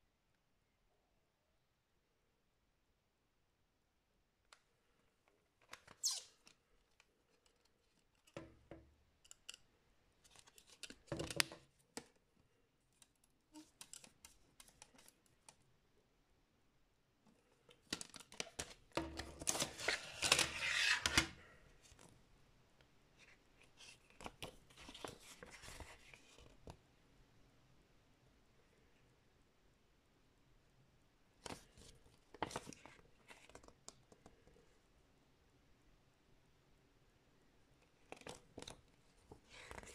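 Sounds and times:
paper rustling: 10.2 - 12.1, 17.7 - 22.1, 23.7 - 26.6, 38.0 - 39.9.

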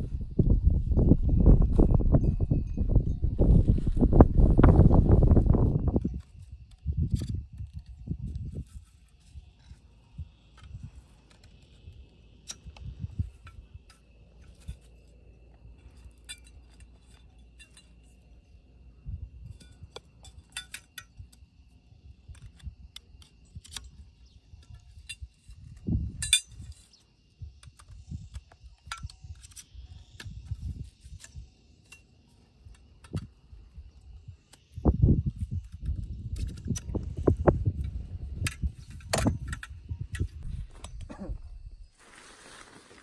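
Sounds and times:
wind gusting on microphone: 0.0 - 13.9, 18.4 - 20.0, 22.0 - 31.7, 32.9 - 42.0.

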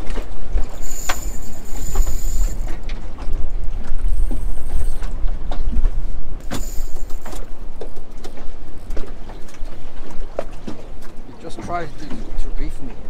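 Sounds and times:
wind rumble on microphone: 0.0 - 13.0
fishing reel whirring: 0.7 - 2.8, 4.0 - 5.1, 6.4 - 7.5.

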